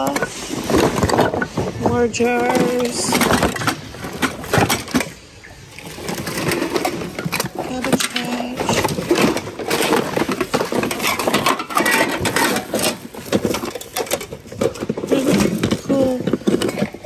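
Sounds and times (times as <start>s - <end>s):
small objects clattering together: 0.0s - 17.0s.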